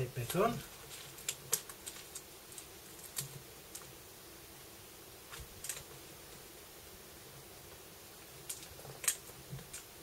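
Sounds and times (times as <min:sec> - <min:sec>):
faint steady hum: 0:00.0 - 0:10.0
fingertips tapping tape: 0:00.2 - 0:03.9.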